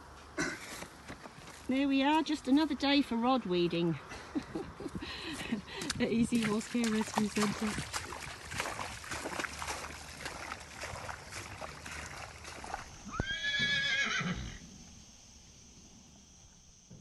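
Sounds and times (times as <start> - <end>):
floodwater gushing from pump pipe: 5.7 - 13.0
horse whinnying: 13.0 - 14.6.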